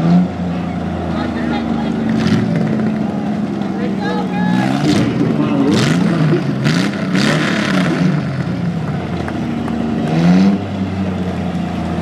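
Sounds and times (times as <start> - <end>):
car engines idling and revving: 0.0 - 12.0.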